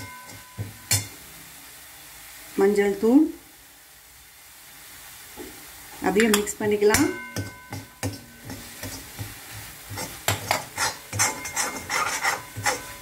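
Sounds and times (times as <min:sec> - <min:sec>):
metal spoon scraping metal pan: 0:00.0 - 0:01.2, 0:06.2 - 0:13.0.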